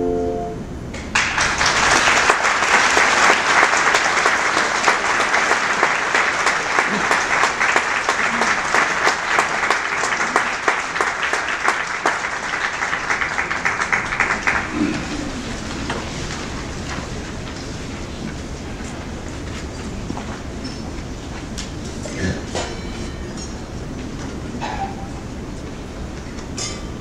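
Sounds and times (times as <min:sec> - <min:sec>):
handbell chord: 0:00.0 - 0:00.6
audience applause: 0:01.0 - 0:17.5.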